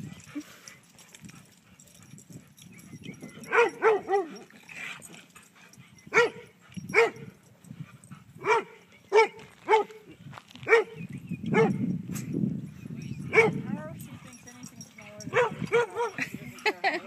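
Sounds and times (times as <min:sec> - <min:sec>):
dog barking: 0:03.5 - 0:04.3, 0:06.1 - 0:07.3, 0:08.4 - 0:10.0, 0:10.6 - 0:11.8, 0:13.3 - 0:13.7, 0:15.2 - 0:16.2.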